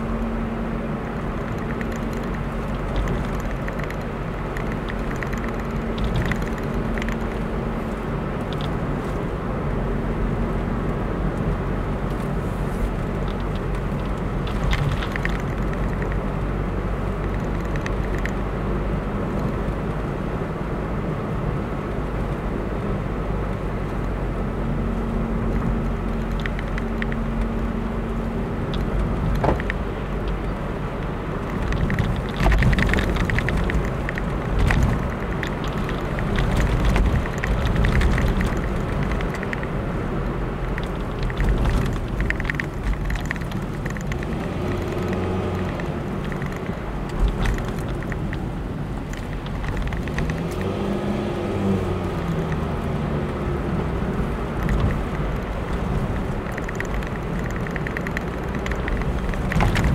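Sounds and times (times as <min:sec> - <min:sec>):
car engine and tyre noise: 0:00.0 - 0:59.9
knocks and rattles from bumps: 0:01.4 - 0:07.4, 0:13.2 - 0:16.2, 0:54.6 - 0:59.9.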